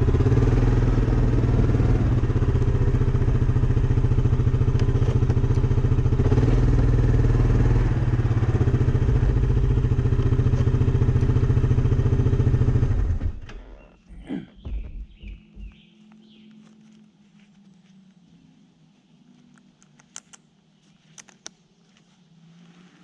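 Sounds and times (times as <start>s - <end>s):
atv engine running: 0.0s - 13.8s.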